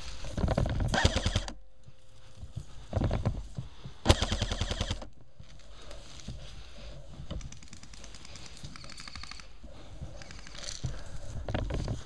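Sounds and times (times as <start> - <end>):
airsoft rifle firing full auto: 0.9 - 1.6, 4.0 - 5.1
faint scattered clicks: 7.2 - 12.0.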